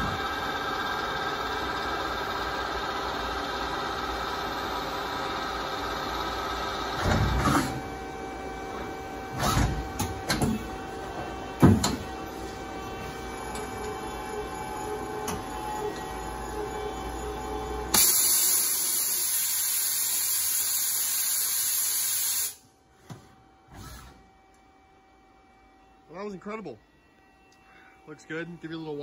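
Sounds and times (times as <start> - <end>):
lathe machine hum: 0.0 - 7.1, 10.6 - 19.4
machine clunks and whirs: 6.5 - 18.4.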